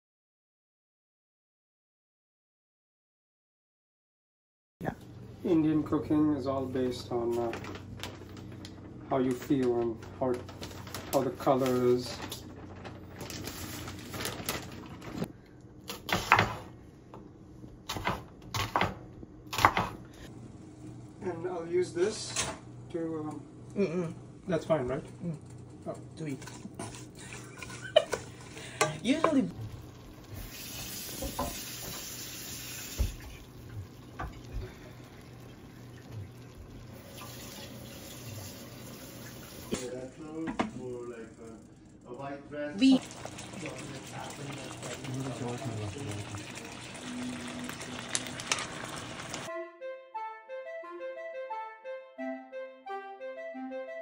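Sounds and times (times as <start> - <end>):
plastic bag rustling: 7.2 - 15.3, 46.2 - 49.5
knife chopping on wooden board: 17.9 - 20.0
vegetables sizzling in a pot: 26.4 - 39.9, 42.8 - 49.5.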